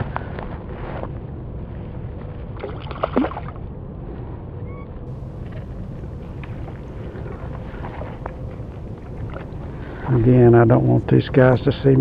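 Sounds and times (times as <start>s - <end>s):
low rumble of wind and water: 0.0s - 12.0s
fish splashing at surface: 2.6s - 3.6s.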